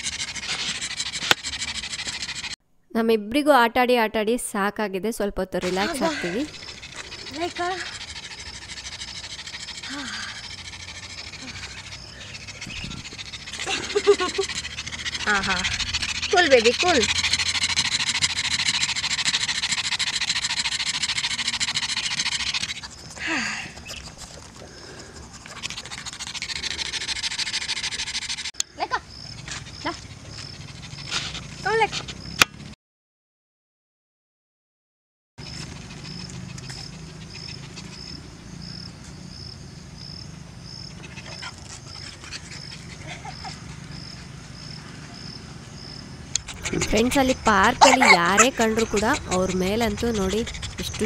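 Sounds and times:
puppy panting rapidly: 0:00.0 - 0:02.6, 0:05.6 - 0:28.6, 0:29.4 - 0:32.4, 0:35.4 - 0:38.9, 0:40.8 - 0:51.0
insect chirping: 0:05.8 - 0:23.2, 0:25.6 - 0:31.2, 0:35.4 - 0:46.8.

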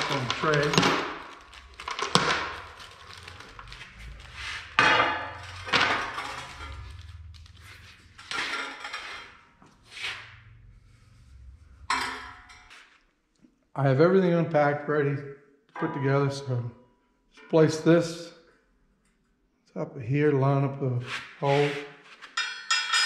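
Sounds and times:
plastic bags rustling: 0:00.0 - 0:09.3.

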